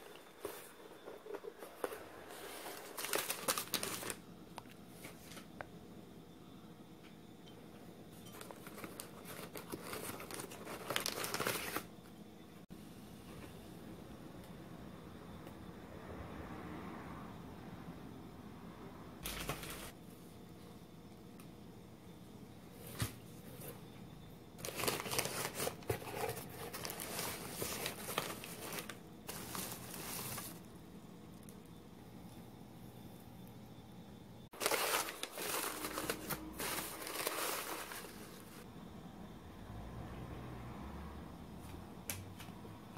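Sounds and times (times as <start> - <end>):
newspaper crumpling and rustling: 0.0 - 4.2, 8.3 - 11.9, 24.6 - 30.7, 34.5 - 38.6.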